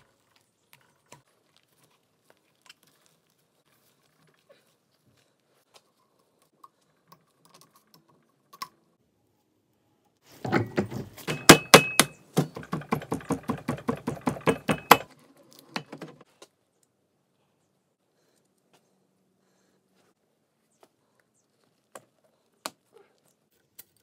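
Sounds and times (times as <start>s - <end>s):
rapid metal knocks: 10.8s - 15.1s.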